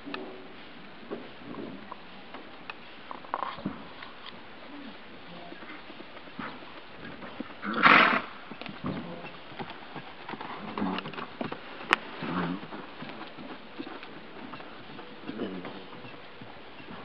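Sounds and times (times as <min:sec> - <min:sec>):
horse snorting: 0:06.4 - 0:17.0.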